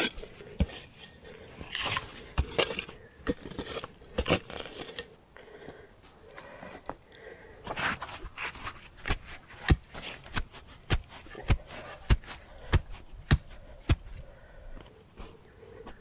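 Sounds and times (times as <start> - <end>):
dull knocks of earth tamping: 0.0 - 4.6, 7.7 - 14.2.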